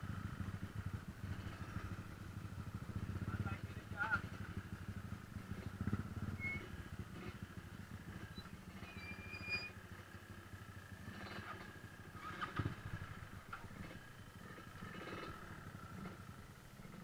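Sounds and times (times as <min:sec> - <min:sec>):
motorcycle engine rumbling: 0:00.0 - 0:17.0
faint high whistles: 0:06.4 - 0:06.8, 0:08.3 - 0:09.8.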